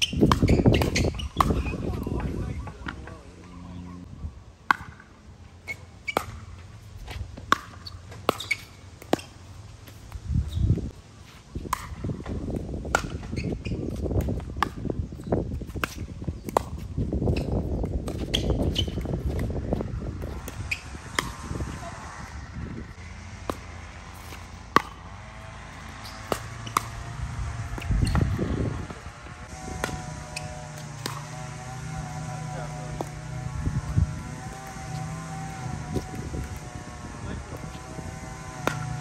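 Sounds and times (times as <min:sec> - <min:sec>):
low rumbling noise: 0:01.3 - 0:04.6, 0:18.6 - 0:39.0.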